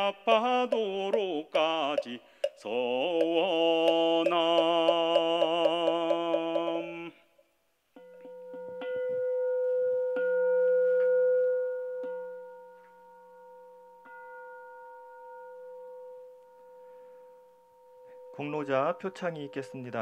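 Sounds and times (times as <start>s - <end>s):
bowl bell ringing: 8.0s - 20.0s.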